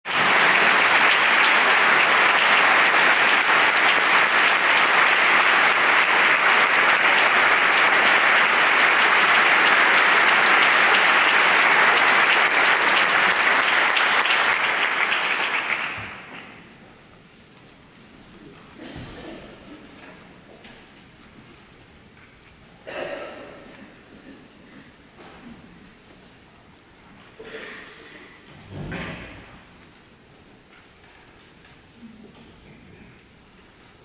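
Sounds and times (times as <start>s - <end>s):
audience applauding: 0.1s - 16.6s.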